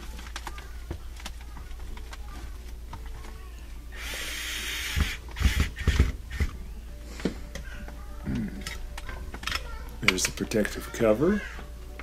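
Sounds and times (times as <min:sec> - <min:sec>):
cordless drill running: 0:04.0 - 0:06.5.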